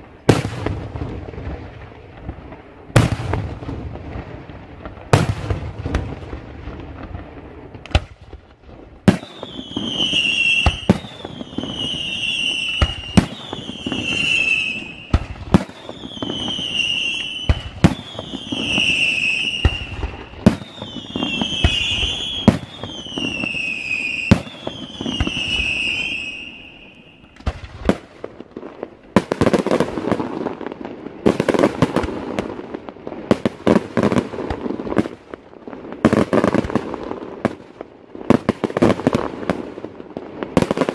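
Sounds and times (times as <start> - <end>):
firework bangs: 0.0 - 40.9
firework crackle: 0.0 - 40.9
falling firework whistle: 9.0 - 28.0.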